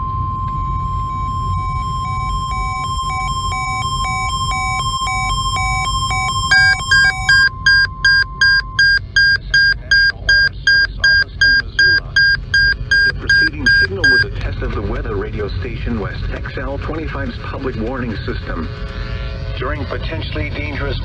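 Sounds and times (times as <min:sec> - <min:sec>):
alternating high-low beeping: 0:00.0 - 0:14.3
loud alarm beeping: 0:00.0 - 0:14.3
steady warning alarm tone: 0:00.0 - 0:14.3.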